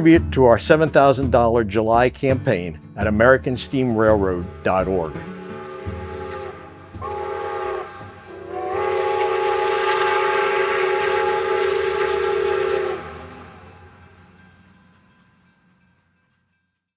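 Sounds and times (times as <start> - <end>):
steam locomotive whistle: 4.1 - 14.7.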